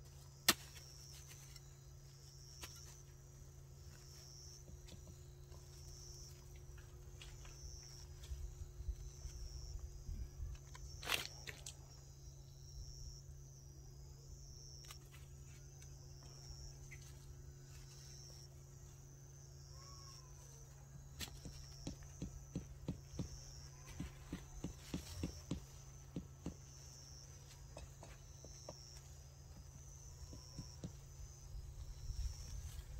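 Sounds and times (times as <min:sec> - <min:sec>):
insects chirping: 0:00.0 - 0:32.9
hand hoe knocking into soil: 0:00.4 - 0:01.5, 0:21.2 - 0:31.3.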